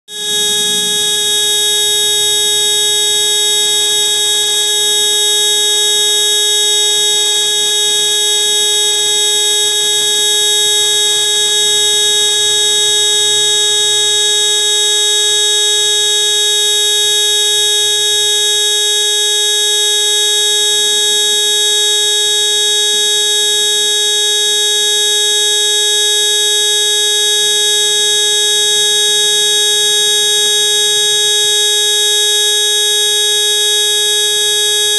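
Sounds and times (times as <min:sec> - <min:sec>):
forklift horn buzzing: 0:00.1 - 0:02.5.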